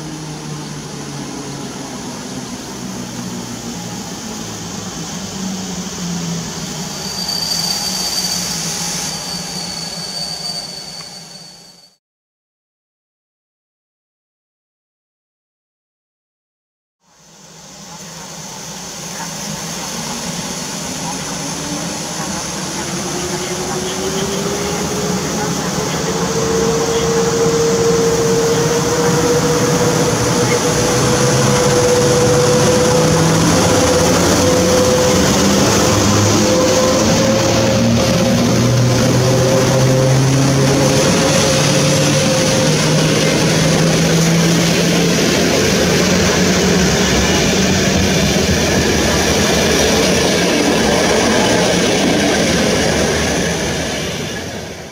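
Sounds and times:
train wheels rolling on rails: 18.0s - 54.9s
locomotive motor whine: 19.1s - 54.7s.

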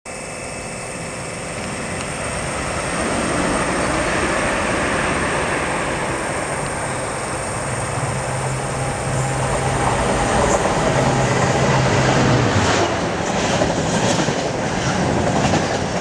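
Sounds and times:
low engine hum: 1.2s - 13.2s
locomotive rumble: 2.2s - 16.0s.

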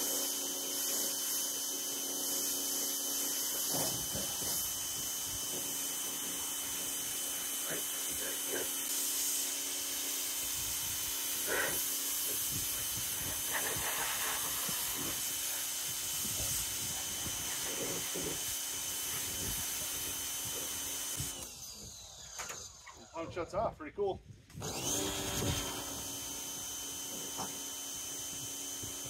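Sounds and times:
water jet spraying: 0.0s - 21.3s
pressure washer motor hum: 0.0s - 22.8s, 24.6s - 29.0s.

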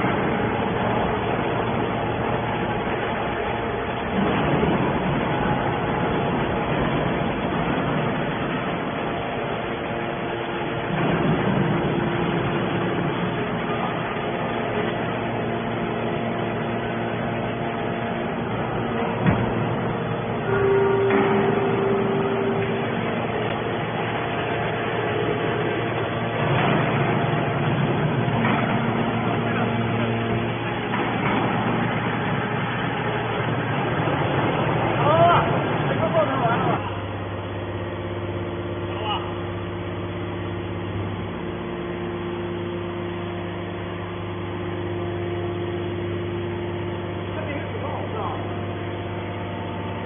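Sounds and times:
hydraulic power pack droning: 0.0s - 50.0s
steady hum: 0.0s - 50.0s
hydraulic cylinder moving lid: 19.1s - 23.9s.

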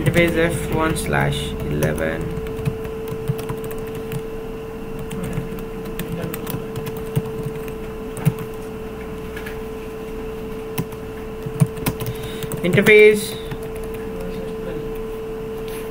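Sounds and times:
keyboard typing clicks: 0.0s - 4.3s, 5.0s - 8.6s, 10.8s - 14.3s
steady hum: 0.0s - 15.9s.

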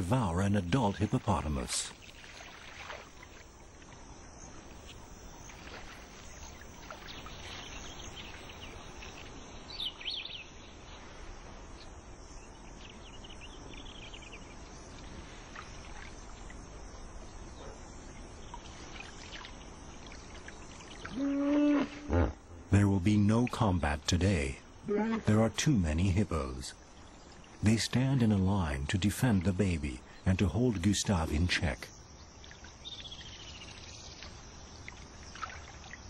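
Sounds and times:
water washing: 0.0s - 9.5s.

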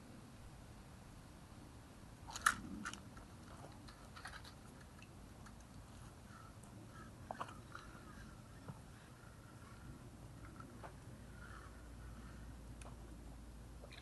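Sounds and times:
low background hiss: 0.0s - 14.0s
crunches and crackles: 2.2s - 13.1s.

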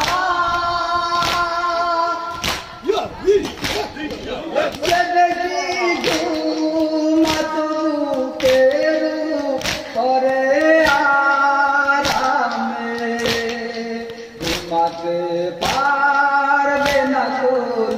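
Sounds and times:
person singing a lament: 0.0s - 17.9s
chest-beating slaps: 1.2s - 1.5s, 2.3s - 15.0s.

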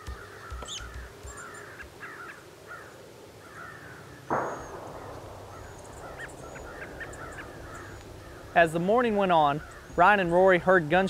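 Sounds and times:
crows cawing: 0.0s - 10.4s
distant gunshot: 4.3s - 8.6s.

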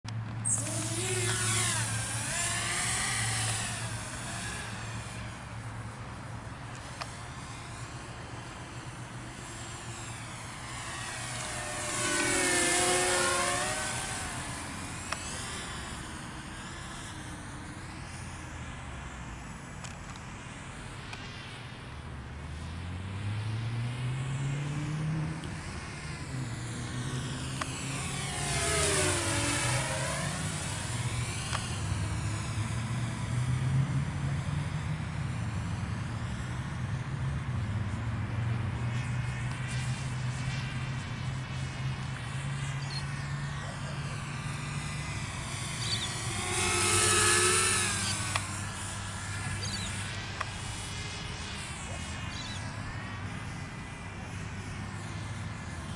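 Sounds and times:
quadcopter motors whining: 0.1s - 55.9s
low steady hum: 25.4s - 55.9s.

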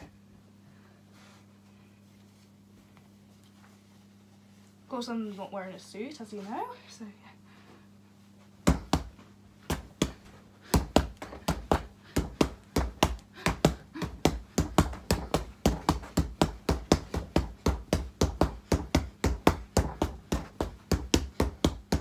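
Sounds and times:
fists punching a punch bag: 8.6s - 22.0s.

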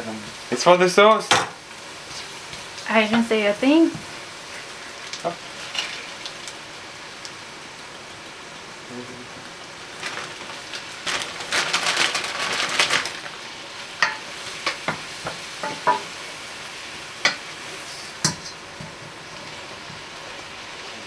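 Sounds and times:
spinach sizzling in a pan: 0.0s - 21.0s
wooden spoon knocking on pan: 14.0s - 16.1s.

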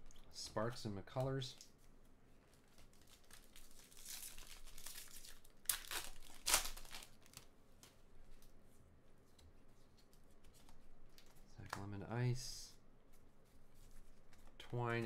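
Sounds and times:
foil wrapper tearing and crinkling: 2.9s - 7.5s.

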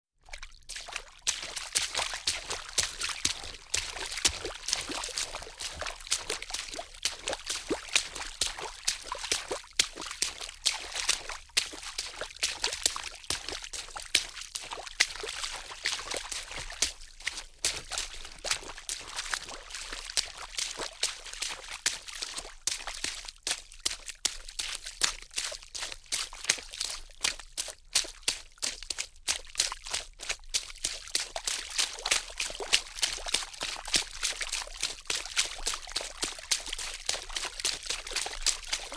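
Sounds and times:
water splashing: 0.3s - 22.4s, 31.2s - 38.9s.

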